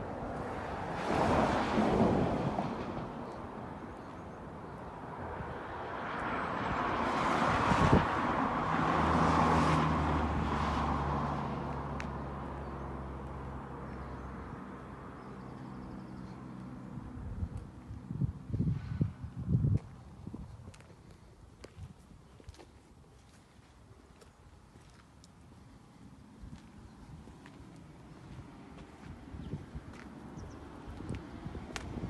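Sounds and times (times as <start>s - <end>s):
car passing by: 0.1s - 3.9s, 5.0s - 17.0s.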